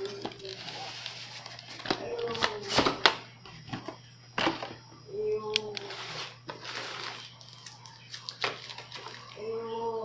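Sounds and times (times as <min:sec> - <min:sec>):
cardboard rubbing and sliding: 0:05.9 - 0:07.3.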